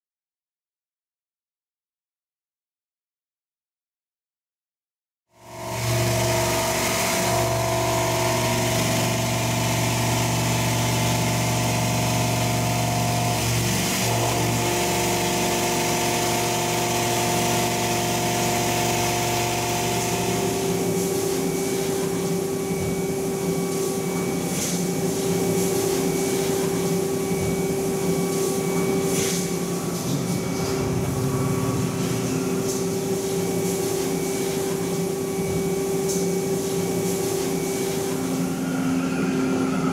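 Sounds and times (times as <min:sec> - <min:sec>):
milling machine cutting steel: 0:05.5 - 0:39.9.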